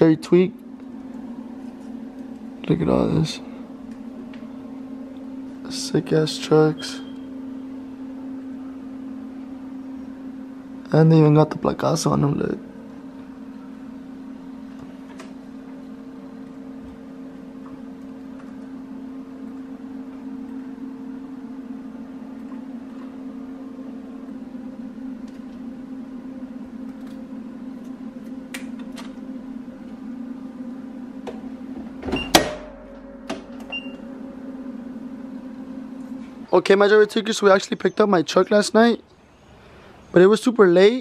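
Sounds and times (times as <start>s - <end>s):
electrical hum: 0.0s - 41.0s.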